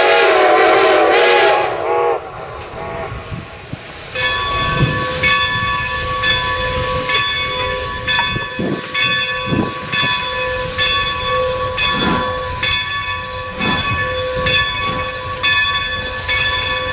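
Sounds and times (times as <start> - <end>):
steam locomotive whistle: 0.0 - 16.9
engine bell ringing: 4.1 - 16.9.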